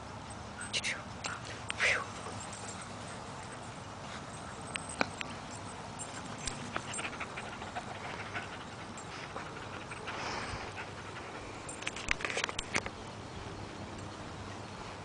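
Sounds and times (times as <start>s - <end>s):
dog panting: 1.3s - 11.8s.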